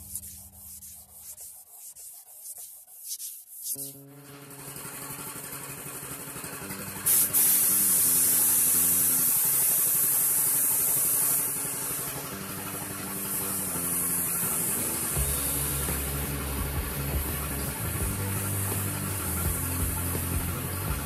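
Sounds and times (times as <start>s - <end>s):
spray gun hissing: 6.4s - 21.0s
background music: 12.2s - 21.0s.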